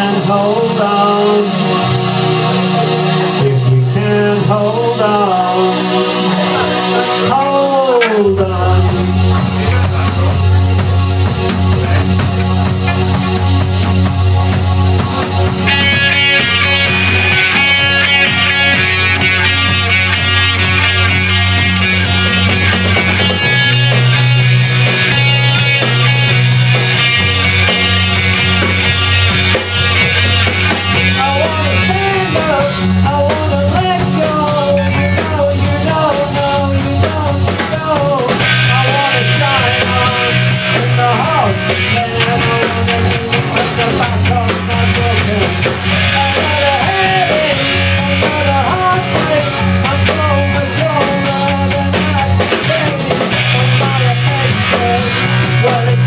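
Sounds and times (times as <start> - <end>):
person singing: 0.0 - 13.4, 30.6 - 56.0
rock band playing: 0.0 - 56.0.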